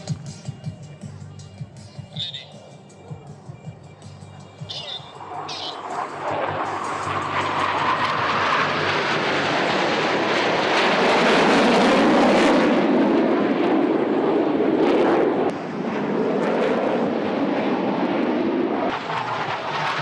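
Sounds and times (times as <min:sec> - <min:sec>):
jet engines roaring overhead: 0:04.6 - 0:20.0.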